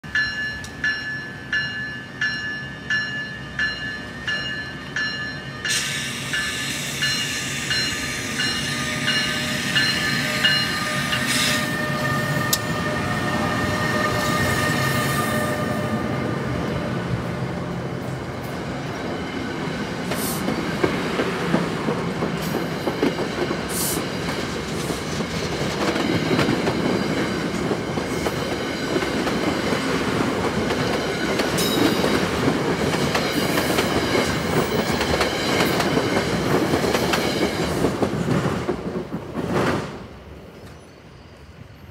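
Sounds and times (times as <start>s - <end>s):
crossing bell ringing: 0.0s - 16.2s
train rumbling past: 0.0s - 41.9s
wheels clickety-clack: 20.1s - 39.9s.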